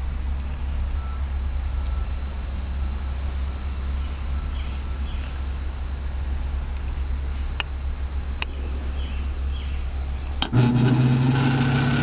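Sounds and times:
surface grinder humming and whining: 10.0 - 12.0.

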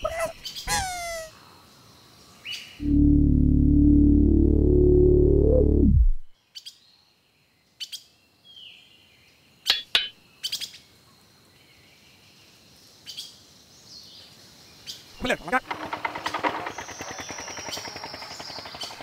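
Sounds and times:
faint jungle background: 0.0 - 3.2, 5.6 - 19.0
short bird chirps: 0.1 - 1.3
loud low humming tone: 2.8 - 6.3.

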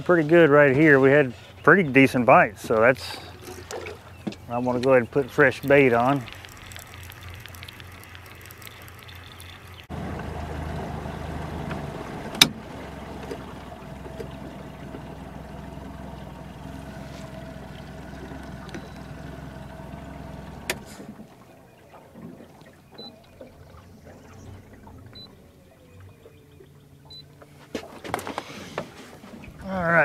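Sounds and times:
boat motor humming and whining: 0.0 - 30.0
faint wind and water: 0.0 - 30.0
sharp clicks: 4.8 - 9.8.

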